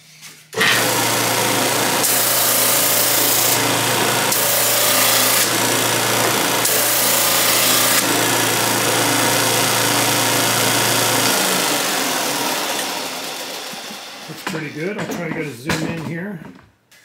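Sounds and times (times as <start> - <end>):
drum sander motor humming: 0.6 - 14.9.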